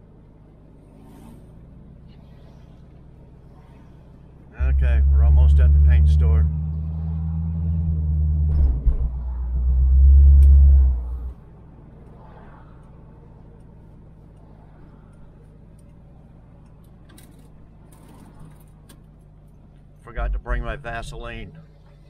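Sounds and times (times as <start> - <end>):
faint low hum: 0.0 - 17.3
car engine rumbling: 0.0 - 22.0.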